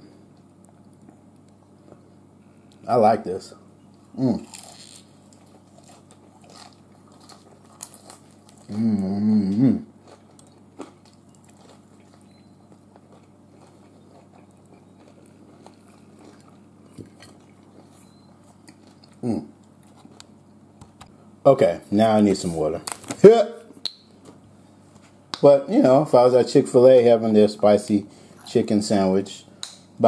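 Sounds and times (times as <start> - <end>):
person chewing crisp food: 4.0 - 20.4
short vocal sound: 4.1 - 4.5, 8.7 - 9.9
person humming mmm: 4.1 - 4.9, 8.6 - 9.9, 19.2 - 19.6.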